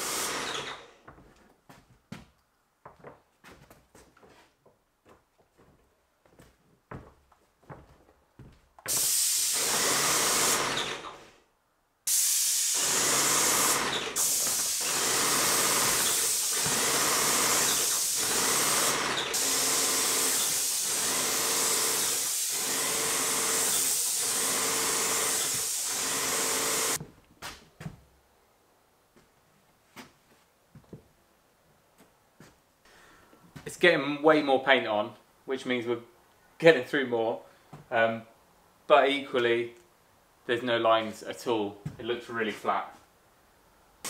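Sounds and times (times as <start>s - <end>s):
paint sprayer hissing: 0.0s - 0.8s, 8.9s - 11.3s, 12.1s - 27.0s.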